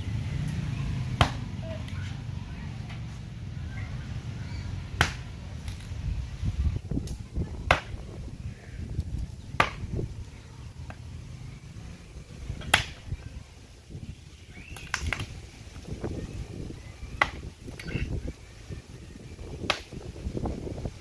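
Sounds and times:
axe chopping wood: 0:01.2 - 0:01.4, 0:05.0 - 0:05.8, 0:07.7 - 0:08.0, 0:09.6 - 0:09.9, 0:12.6 - 0:13.0, 0:17.2 - 0:17.5, 0:19.6 - 0:19.9.

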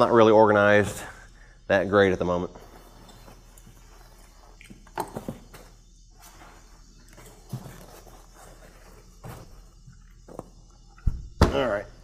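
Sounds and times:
fabric bag rustling: 0:02.6 - 0:04.6, 0:05.2 - 0:10.2.

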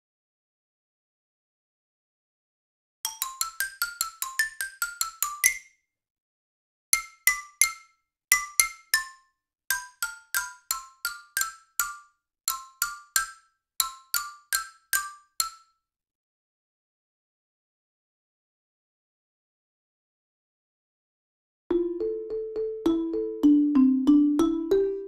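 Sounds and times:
xylophone melodic runs: 0:03.1 - 0:05.6, 0:21.7 - 0:25.0.

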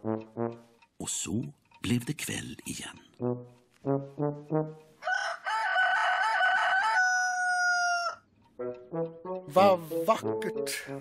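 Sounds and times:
low brass notes: 0:00.0 - 0:00.8, 0:03.2 - 0:05.0, 0:08.6 - 0:10.9
rooster crowing: 0:05.0 - 0:08.3.

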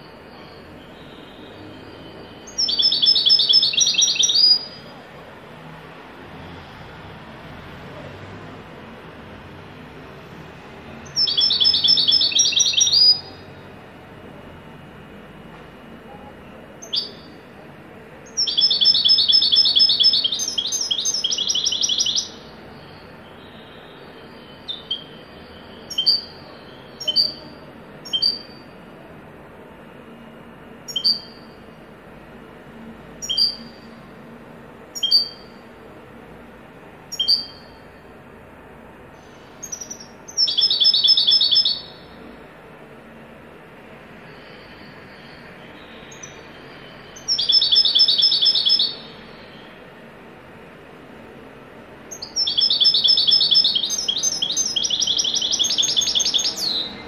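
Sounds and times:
goldfinch singing: 0:00.9 - 0:04.9, 0:11.0 - 0:13.4, 0:16.8 - 0:17.3, 0:18.3 - 0:22.5, 0:30.9 - 0:31.5, 0:35.0 - 0:35.5, 0:37.1 - 0:37.7, 0:39.6 - 0:42.1, 0:45.8 - 0:49.6, 0:52.1 - 0:57.0.

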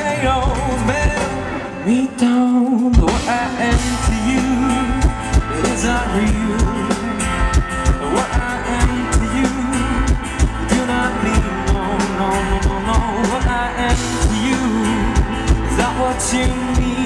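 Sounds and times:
acoustic guitar strumming: 0:00.0 - 0:17.0
drum kit beat: 0:00.0 - 0:17.0
person singing: 0:00.0 - 0:17.0.

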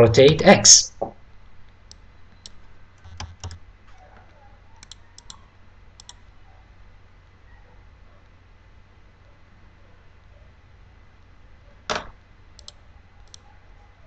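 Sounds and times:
faint low hum: 0:00.0 - 0:14.0
computer input clicks: 0:01.9 - 0:03.6, 0:04.8 - 0:05.4, 0:06.0 - 0:06.2, 0:12.6 - 0:13.4.

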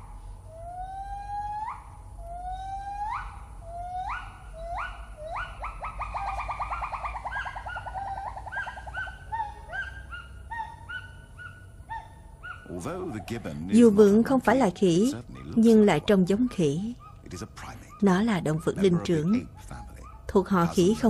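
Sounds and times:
gibbon whoops and hoots: 0:00.5 - 0:12.7.

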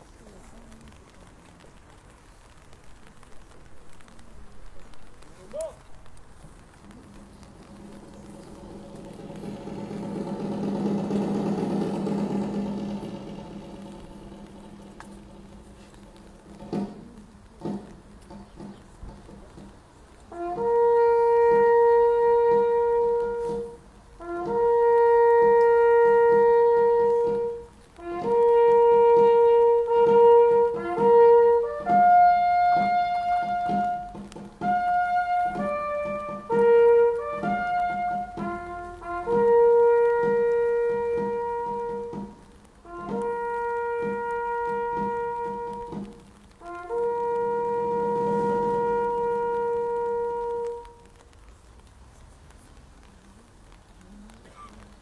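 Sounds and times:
brass instrument playing military call: 0:07.5 - 0:17.0, 0:20.3 - 0:51.2.

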